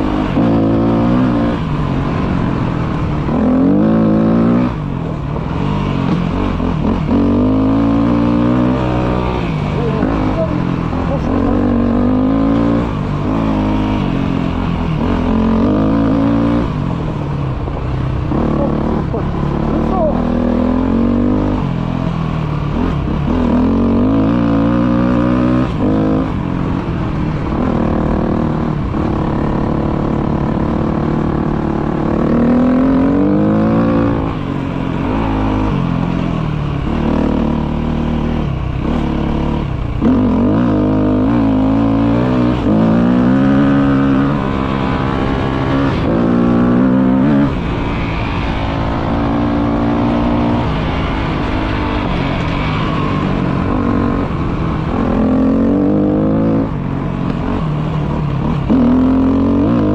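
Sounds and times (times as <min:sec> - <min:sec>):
off-road motorcycle engine revving: 0:00.0 - 0:59.9.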